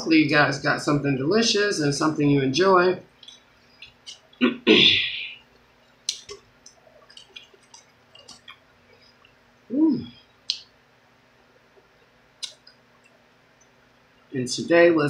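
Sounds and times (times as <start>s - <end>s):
chewing clicks and smacks: 3.2s - 4.4s, 6.0s - 9.4s, 10.4s - 10.7s, 12.4s - 13.8s
hum-like voice sound: 4.4s - 5.4s, 9.7s - 10.2s
breathy hiss: 4.6s - 5.4s.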